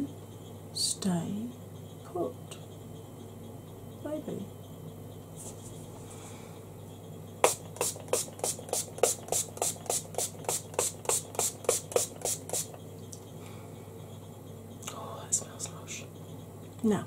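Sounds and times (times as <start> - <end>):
spray bottle spritzes: 7.4 - 12.8.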